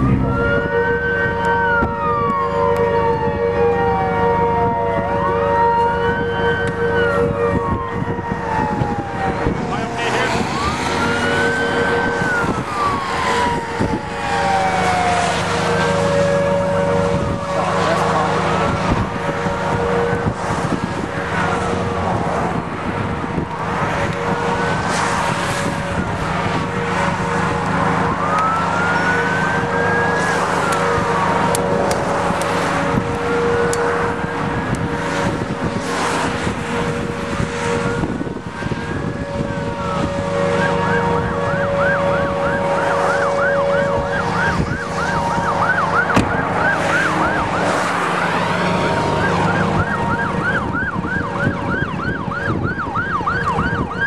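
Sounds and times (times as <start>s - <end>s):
emergency vehicle siren: 0.0s - 54.0s.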